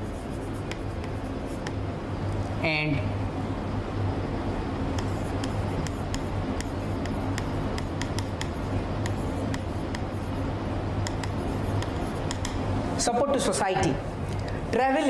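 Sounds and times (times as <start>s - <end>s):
low electrical hum: 0.0s - 15.0s
pen ticks and taps of writing: 0.7s - 1.8s, 5.0s - 10.1s, 11.0s - 12.6s.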